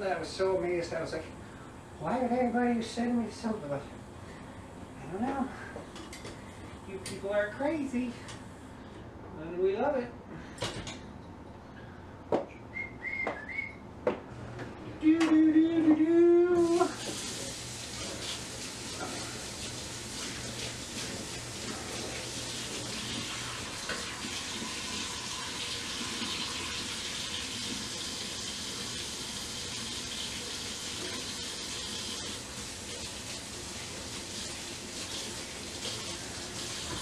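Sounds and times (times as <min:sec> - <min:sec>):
dishes washed by hand: 0:15.3 - 0:37.0
faucet running into sink: 0:16.6 - 0:37.0.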